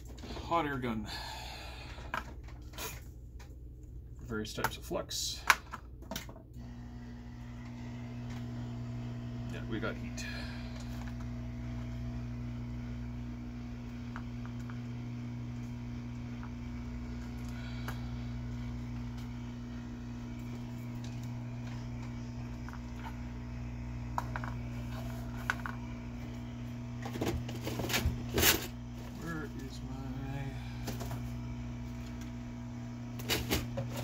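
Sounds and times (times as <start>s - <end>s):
hot air gun running: 9.5s - 34.0s.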